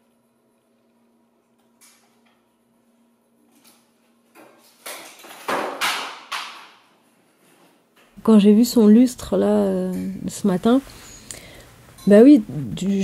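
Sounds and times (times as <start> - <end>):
faint steady hum: 0.0 - 5.4, 6.8 - 13.0
wooden boards knocking together: 4.9 - 6.8.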